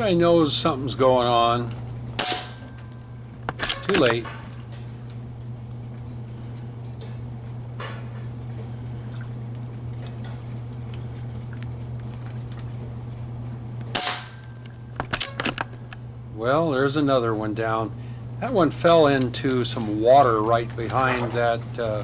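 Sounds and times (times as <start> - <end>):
steady low hum: 0.0 - 22.0
rat thrashing in water: 10.9 - 13.0
air rifle shot: 14.0 - 14.4.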